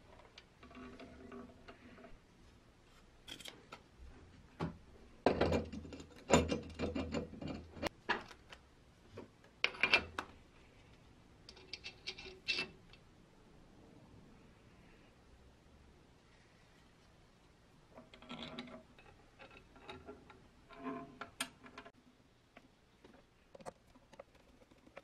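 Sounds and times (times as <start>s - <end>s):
metal parts clicking and scraping: 3.2s - 3.8s, 5.5s - 8.4s, 11.5s - 13.0s, 18.0s - 21.9s.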